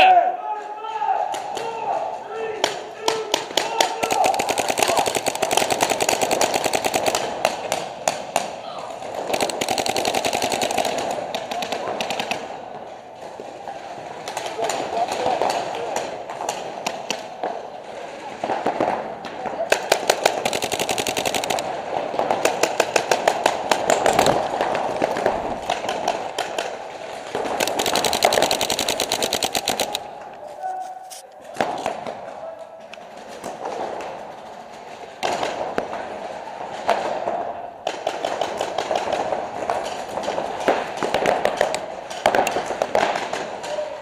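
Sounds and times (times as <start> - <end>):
paintball markers firing: 2.6 - 12.6, 19.7 - 32.2.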